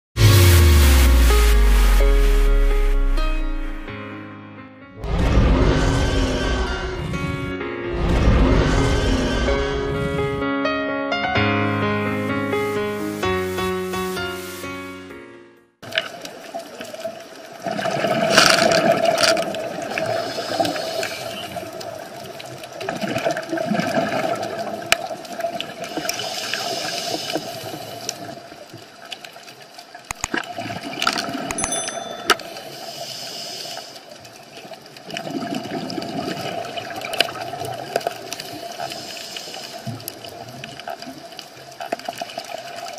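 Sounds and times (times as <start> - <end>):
exhaled bubbles rushing underwater: 21.3 - 25.9, 35.0 - 38.8.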